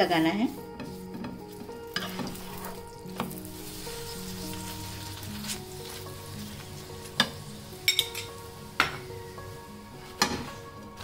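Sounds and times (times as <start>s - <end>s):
ghee sizzling in a pan: 0.0s - 11.0s
steel spoon scraping a pan: 0.2s - 9.1s
spoon clinking against pan: 7.2s - 9.1s.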